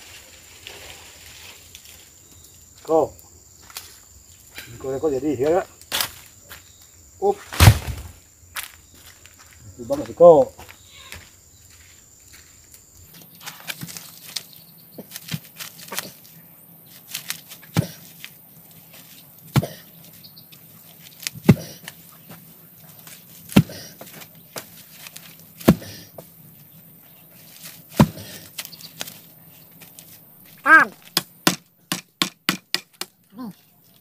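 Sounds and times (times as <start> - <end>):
rustling: 0.0 - 2.2, 13.1 - 31.2.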